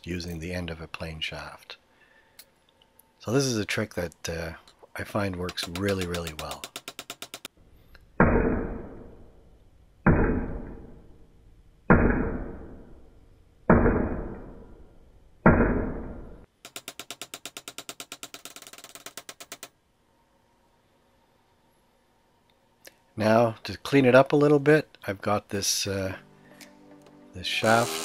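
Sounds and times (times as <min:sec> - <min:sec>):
hammer tapping steel axle: 0:05.3 - 0:07.5
quick run of clicks: 0:05.4 - 0:07.5.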